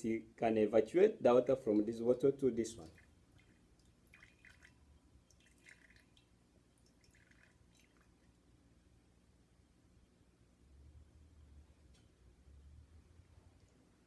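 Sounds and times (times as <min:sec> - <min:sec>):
water dripping into glass beaker: 0:02.8 - 0:08.4.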